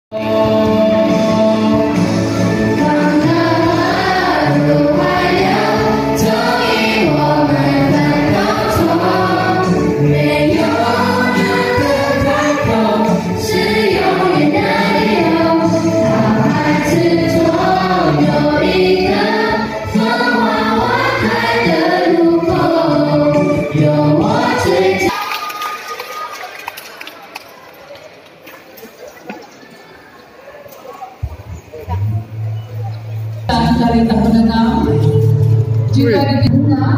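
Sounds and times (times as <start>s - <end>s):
children's choir singing: 0.1s - 25.4s.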